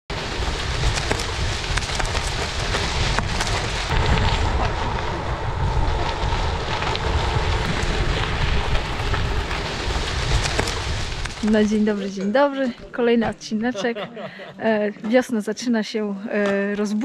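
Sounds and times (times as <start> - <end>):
wind buffeting microphone: 0.1 - 12.0
crackles and ticks: 0.1 - 13.4.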